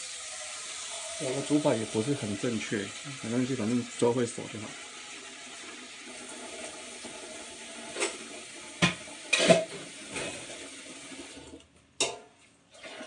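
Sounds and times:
kitchenware clanking: 0:08.8 - 0:10.6, 0:12.0 - 0:12.4
tap running into a sink: 0:08.8 - 0:10.6.

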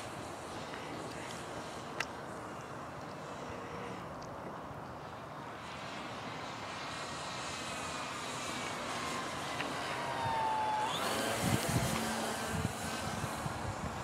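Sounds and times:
model airplane motor whining: 0:07.4 - 0:14.0.

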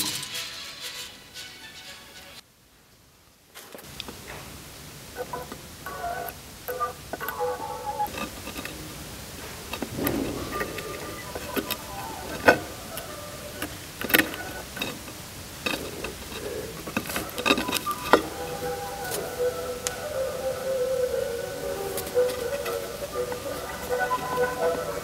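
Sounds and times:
sharp crackling clicks: 0:05.5 - 0:20.1.

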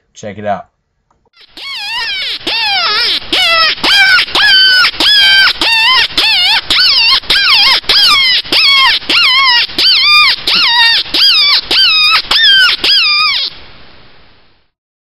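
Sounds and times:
predator call squealing: 0:01.4 - 0:13.6.

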